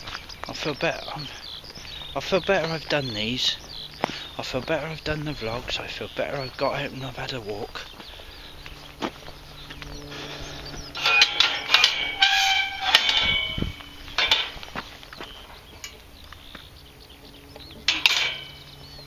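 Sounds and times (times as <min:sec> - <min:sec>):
metal gate squealing: 0:10.9 - 0:14.6, 0:17.9 - 0:18.7
metal gate clanking: 0:10.9 - 0:14.8, 0:17.8 - 0:18.8.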